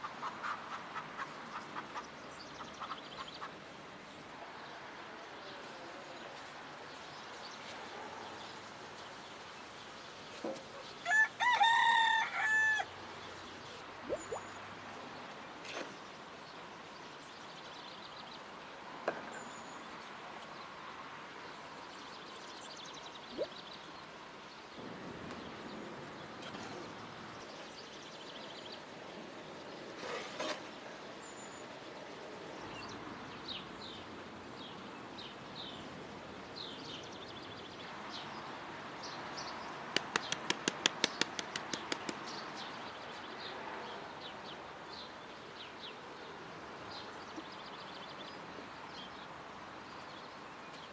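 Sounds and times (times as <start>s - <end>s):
faint outdoor background: 0.0s - 50.9s
rooster crowing: 11.0s - 12.9s
small high bird chirps: 14.0s - 14.6s.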